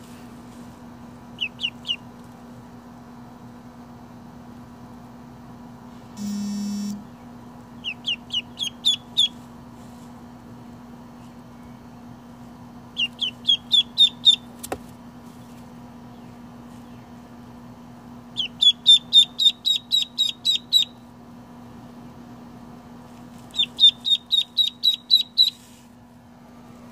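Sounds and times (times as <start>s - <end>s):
steady low hum: 0.0s - 26.9s
chicks peeping: 1.4s - 2.1s, 7.8s - 9.4s, 12.9s - 14.5s, 18.4s - 21.0s, 23.4s - 25.7s.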